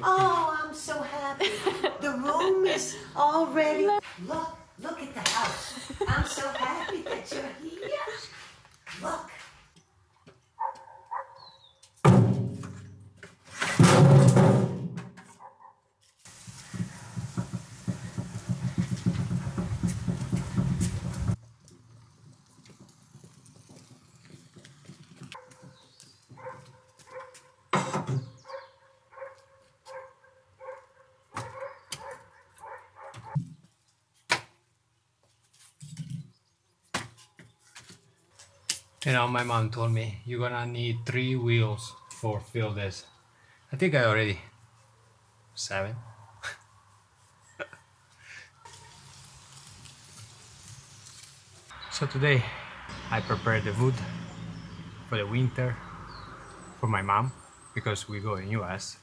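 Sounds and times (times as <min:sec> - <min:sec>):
wheelbarrow rattling over paving: 0:13.5 - 0:14.8, 0:16.3 - 0:26.5.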